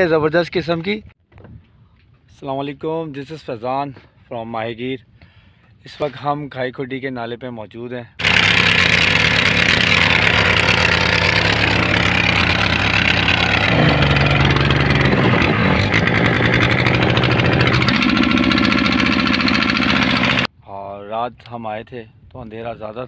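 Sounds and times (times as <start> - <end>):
wind: 0.0 - 23.0
boat engine running: 8.2 - 20.5.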